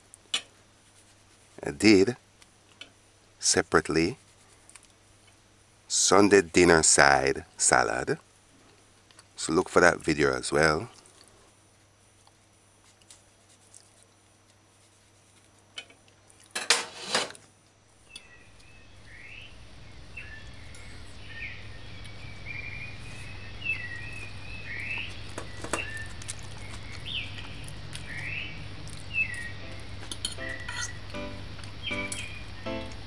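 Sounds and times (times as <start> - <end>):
cutlery scraping a plate: 16.6 - 17.4, 30.1 - 30.9.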